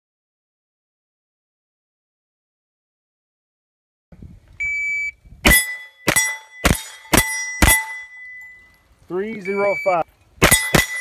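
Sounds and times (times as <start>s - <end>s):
rifle shots: 5.5s - 8.0s, 10.4s - 11.0s
steel targets ringing: 5.5s - 8.8s, 9.4s - 11.0s
shot timer beep: 9.4s - 11.0s.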